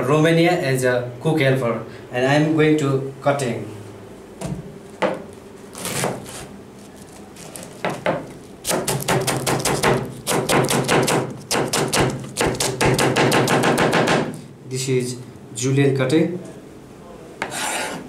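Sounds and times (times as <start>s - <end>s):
knife cutting cabbage on a board: 5.7s - 14.2s.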